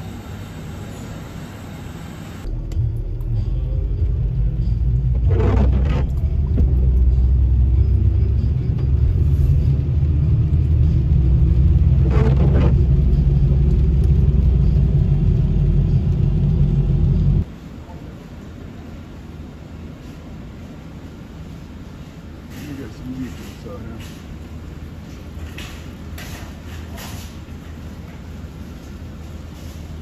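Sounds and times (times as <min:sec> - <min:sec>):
car interior rumble: 0:02.4 - 0:17.4.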